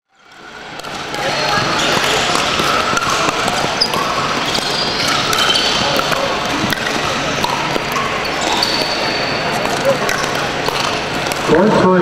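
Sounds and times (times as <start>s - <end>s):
paddles hitting plastic balls: 0.3s - 12.0s
murmur of voices: 0.5s - 12.0s
shoe squeaks on hardwood floor: 1.2s - 10.3s.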